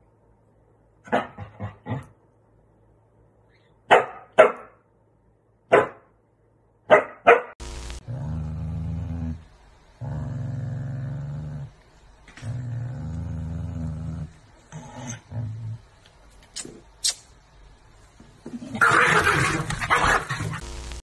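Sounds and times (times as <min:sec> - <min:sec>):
dog barking: 0:03.9 - 0:04.8, 0:05.7 - 0:06.1, 0:06.8 - 0:07.6
dog growling: 0:08.0 - 0:11.8, 0:12.4 - 0:15.9.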